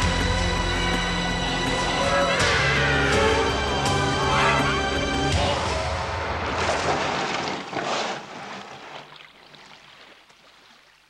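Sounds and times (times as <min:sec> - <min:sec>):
music: 0:00.0 - 0:06.5
surf washing: 0:05.4 - 0:10.9.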